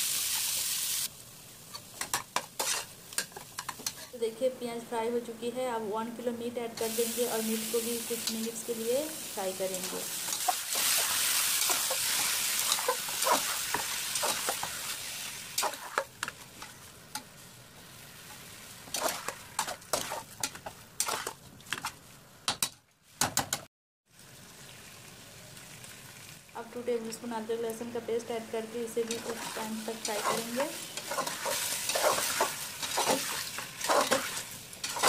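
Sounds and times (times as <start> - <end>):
meat sizzling in hot oil: 0.0 - 4.0, 6.8 - 20.3, 24.1 - 26.9, 28.9 - 35.0
metal spatula scraping a pot: 2.1 - 4.2, 10.3 - 14.7, 29.0 - 35.0.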